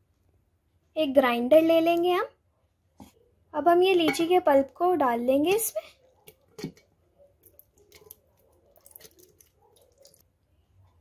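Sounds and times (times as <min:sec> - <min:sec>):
soft wet plops: 0:06.2 - 0:10.3.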